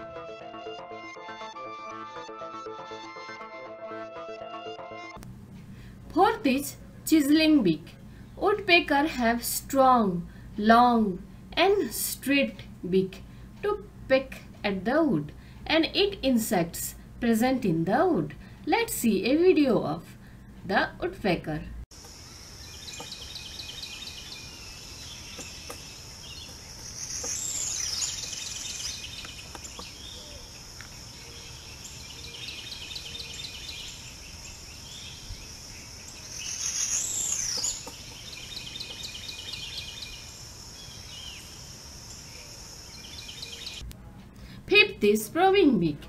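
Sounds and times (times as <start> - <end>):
high insect drone: 22.0 - 43.8
bird calls: 22.2 - 43.8.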